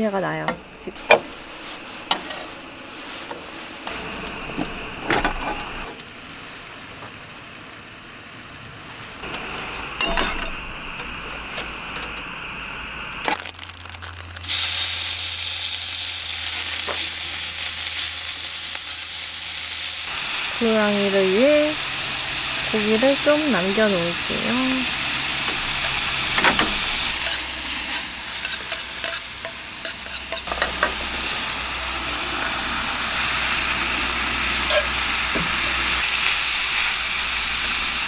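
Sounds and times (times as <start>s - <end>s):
food sizzling in a frying pan: 12.3s - 38.0s
metal tongs clicking on pan: 27.2s - 30.5s.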